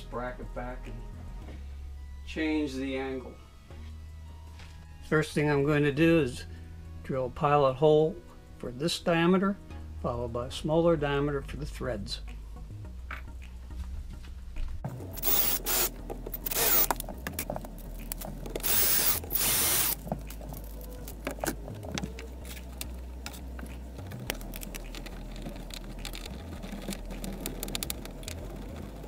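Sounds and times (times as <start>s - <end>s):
parts clicking and rattling: 15.1s - 29.0s
cordless drill boring: 15.2s - 17.0s, 18.6s - 20.0s.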